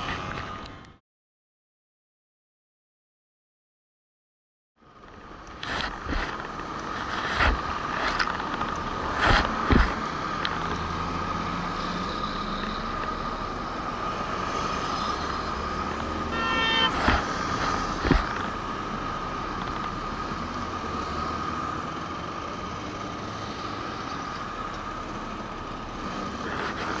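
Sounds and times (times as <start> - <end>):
passing cars: 4.8 - 27.0
vehicle horn: 16.2 - 17.3.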